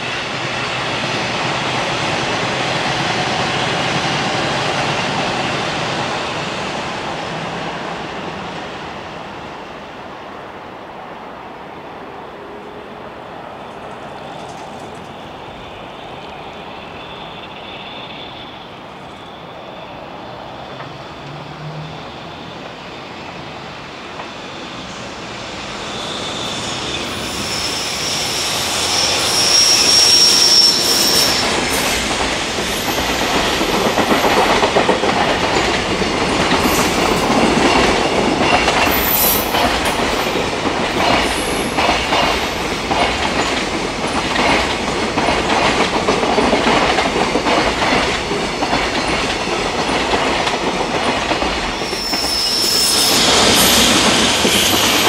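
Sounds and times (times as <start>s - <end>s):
freight train rumble: 0.0s - 55.0s
high steady squeal: 14.2s - 34.4s, 51.5s - 55.0s.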